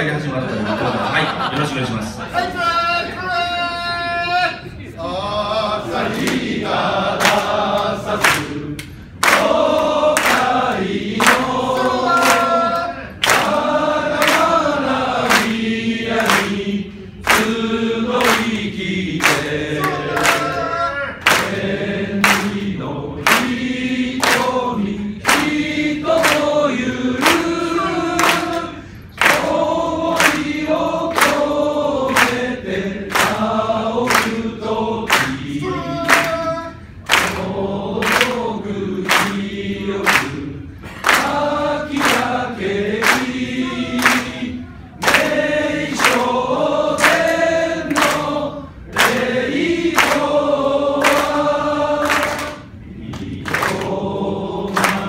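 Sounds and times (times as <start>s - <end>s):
men singing in unison: 5.0s - 55.0s
hand claps: 7.2s - 16.6s, 17.2s - 17.6s, 18.2s - 20.6s, 21.2s - 21.6s, 22.2s - 23.6s, 24.2s - 24.6s, 25.2s - 26.6s, 27.2s - 32.5s, 33.1s - 34.4s, 35.1s - 36.4s, 37.0s - 42.4s, 43.0s - 44.4s, 45.0s - 54.0s, 54.7s - 55.0s.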